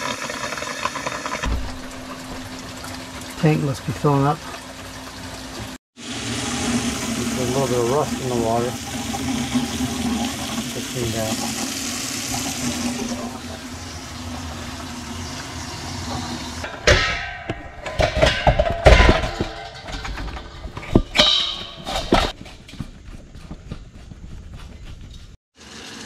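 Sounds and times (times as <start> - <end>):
sharp knocks and clattering: 1.4 - 3.2, 14.3 - 25.4
water pouring into sink: 6.0 - 16.6.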